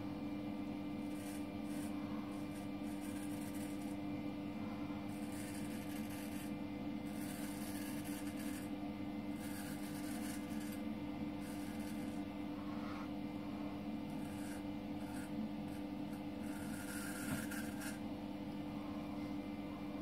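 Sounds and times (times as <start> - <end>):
steady low hum: 0.0 - 20.0
razor scraping stubble: 1.0 - 4.0, 5.1 - 8.7, 9.3 - 10.8, 11.4 - 12.3, 14.1 - 18.0.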